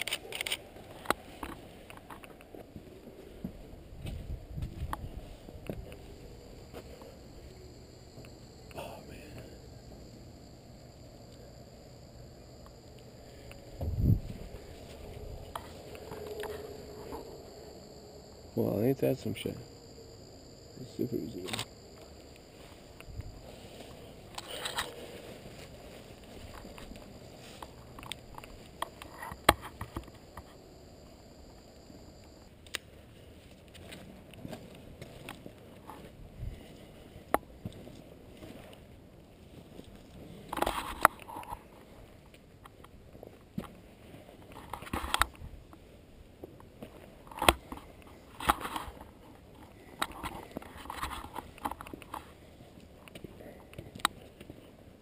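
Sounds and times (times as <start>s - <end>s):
footsteps through dry weeds: 0.6s - 7.6s, 14.1s - 17.2s, 21.9s - 29.0s, 32.9s - 41.0s
light scuffing: 0.6s - 7.6s, 13.4s - 17.3s, 22.0s - 29.1s, 32.8s - 54.8s.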